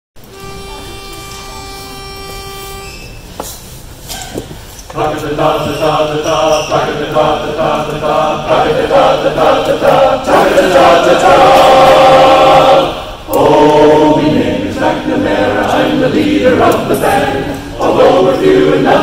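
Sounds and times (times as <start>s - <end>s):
men's chorus singing a cappella: 4.9s - 19.0s.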